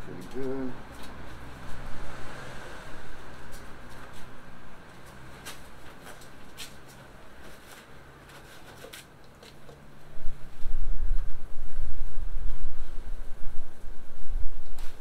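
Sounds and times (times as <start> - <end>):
wind rumbling on microphone: 10.0 - 15.0.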